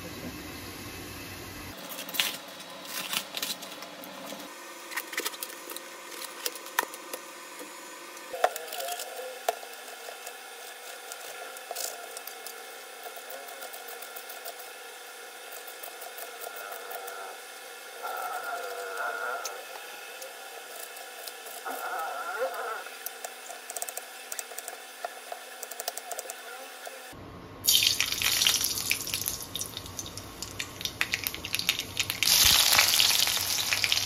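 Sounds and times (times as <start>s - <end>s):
beans sizzling in oil: 27.7s - 34.0s.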